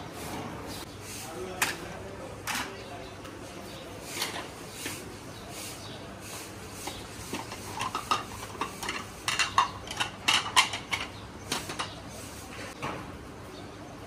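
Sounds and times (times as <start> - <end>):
plates clinking: 6.8 - 12.0.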